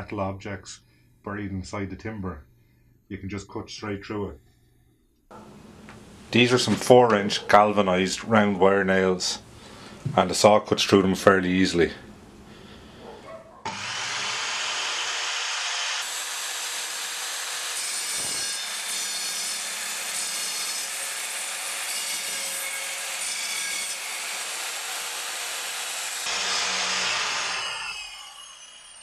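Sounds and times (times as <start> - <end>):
mitre saw cutting through wood: 13.7 - 29.0.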